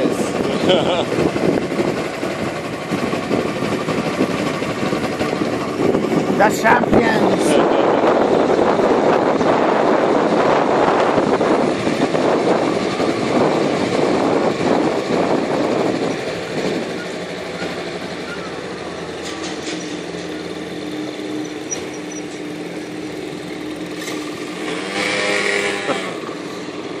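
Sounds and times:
wind rushing over microphone: 0.0 - 19.2
scooter engine hum: 0.0 - 27.0.

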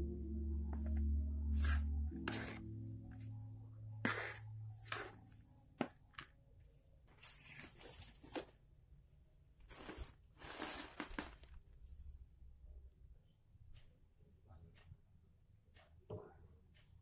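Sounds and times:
plastic sack rustling: 7.1 - 8.6, 9.6 - 11.8
compost scraping and crunching: 9.7 - 11.6.

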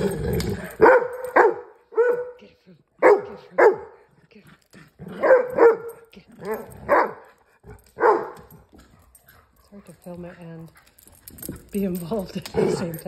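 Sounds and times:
dog play-barking: 0.3 - 2.4, 3.0 - 4.1, 5.0 - 9.5, 12.5 - 13.0.

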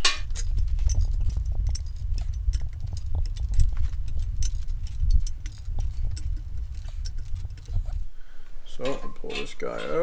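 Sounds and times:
low rumble: 0.2 - 8.1.

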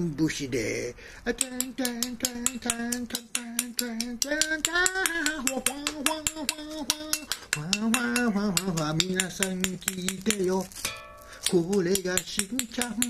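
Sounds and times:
man singing long notes: 1.2 - 10.8, 11.5 - 13.0
spoon tapping a teacup: 1.4 - 13.0.

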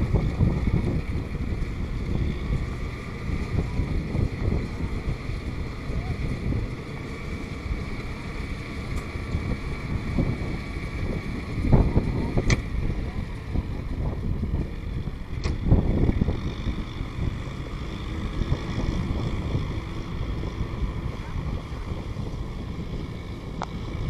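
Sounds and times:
diesel tractor running: 0.0 - 24.0
straw baler running: 0.0 - 24.0
wind buffeting microphone: 0.0 - 24.0
sharp click: 15.4 - 15.6.

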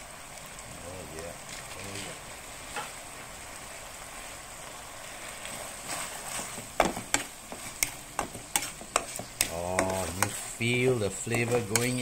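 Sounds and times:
food sizzling in oil: 0.0 - 12.0
spatula scraping a wok: 5.5 - 12.0.

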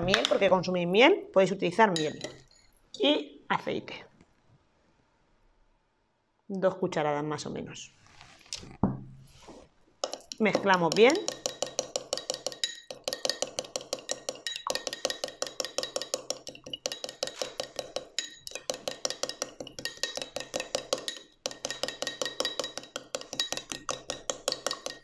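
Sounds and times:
utensil clinking against glass: 2.0 - 2.5, 10.0 - 25.0.

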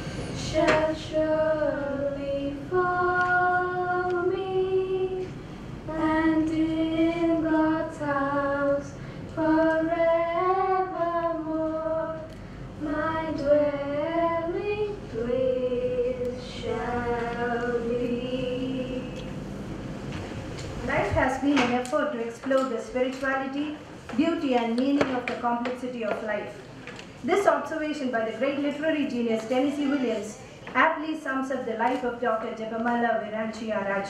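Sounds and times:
woman singing unaccompanied: 0.4 - 19.4.

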